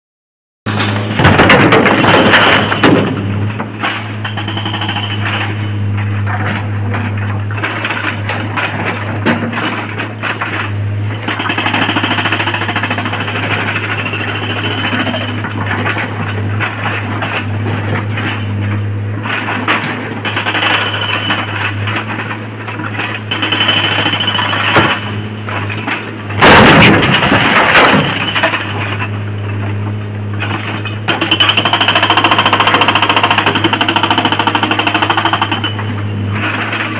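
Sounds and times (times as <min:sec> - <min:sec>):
excavator diesel engine droning: 0:00.7 - 0:36.9
rocks clattering: 0:25.6 - 0:29.0
rock crashing into truck body: 0:26.3 - 0:28.4.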